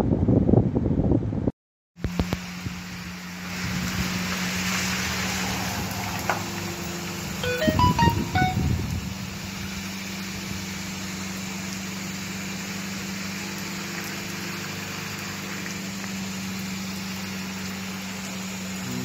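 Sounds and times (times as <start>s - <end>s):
rain falling: 2.0s - 19.0s.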